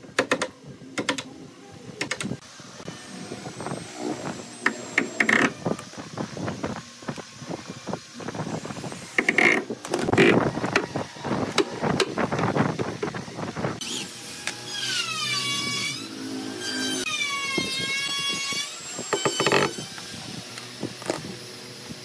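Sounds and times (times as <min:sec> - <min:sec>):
electric drill motor whining: 0:02.4 - 0:11.7, 0:13.8 - 0:22.0.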